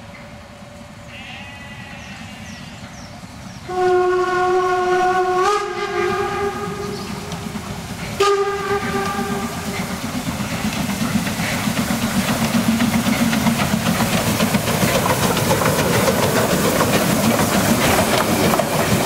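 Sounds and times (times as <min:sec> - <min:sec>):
locomotive running noise: 0:01.8 - 0:19.0
steam locomotive whistle: 0:03.7 - 0:07.4, 0:08.2 - 0:09.8.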